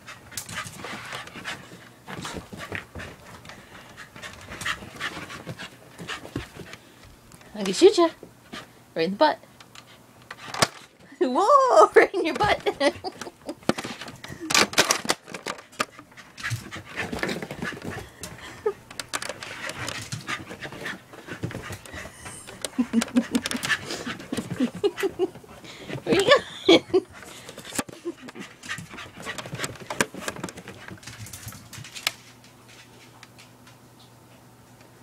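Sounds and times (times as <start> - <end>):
dog panting: 0.0 - 6.9, 19.4 - 26.4, 27.0 - 31.0.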